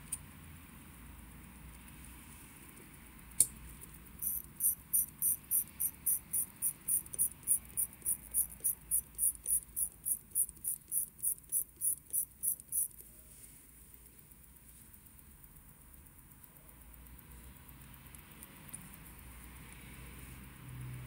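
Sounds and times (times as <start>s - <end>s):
watch crown ratchet clicking: 2.7s - 13.1s, 13.8s - 20.0s.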